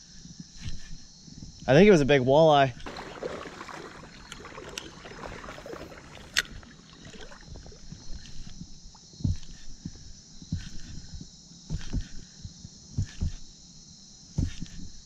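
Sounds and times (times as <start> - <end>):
water sloshing and splashing: 2.8 - 9.0.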